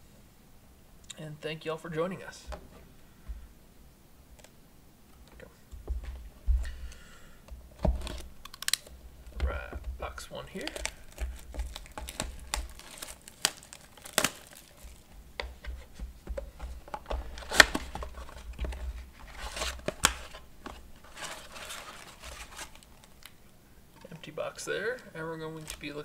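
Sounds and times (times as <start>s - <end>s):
cardboard tearing: 10.5s - 16.0s, 16.8s - 23.2s.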